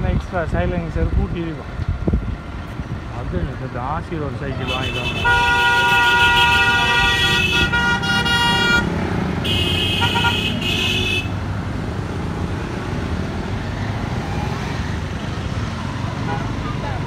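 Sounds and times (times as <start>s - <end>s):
engine and road rumble: 0.0s - 17.0s
vehicle horns honking: 4.6s - 11.4s, 16.2s - 16.6s.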